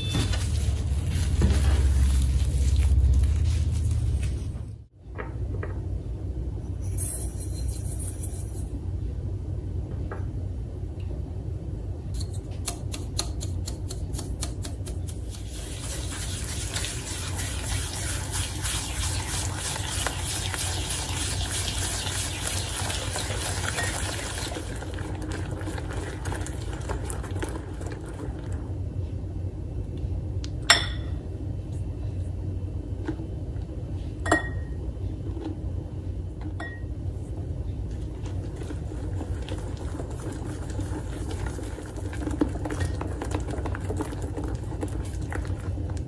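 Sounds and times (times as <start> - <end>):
whisk stirring liquid in a bowl: 12.2 - 28.3, 38.2 - 45.9.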